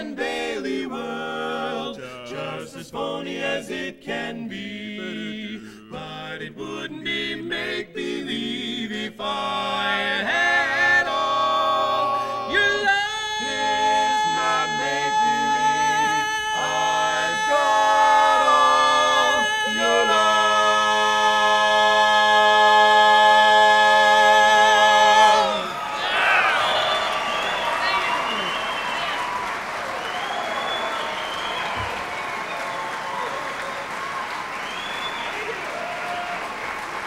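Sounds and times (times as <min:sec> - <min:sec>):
male quartet singing a cappella: 0:00.0 - 0:27.4.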